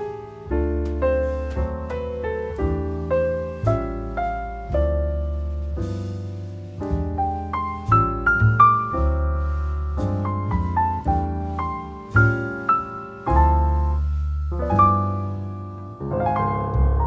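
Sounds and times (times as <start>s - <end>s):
slow solo piano music: 0.0s - 17.0s.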